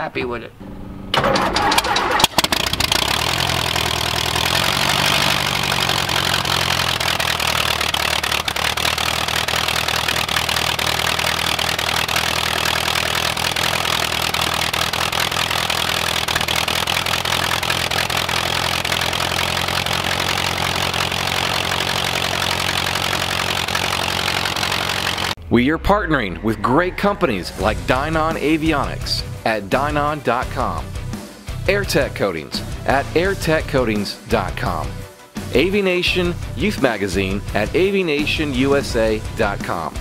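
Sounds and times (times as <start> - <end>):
propeller aircraft engine idling: 1.2 - 25.4.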